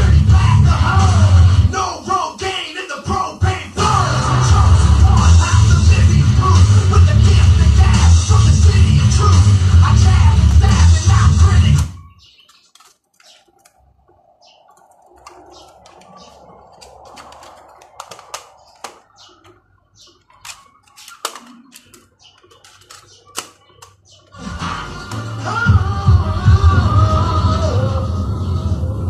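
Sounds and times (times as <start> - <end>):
music from a cassette: 0.0 - 13.4, 15.3 - 29.0
plastic cassette cases clicking: 12.3 - 13.8, 15.2 - 24.3.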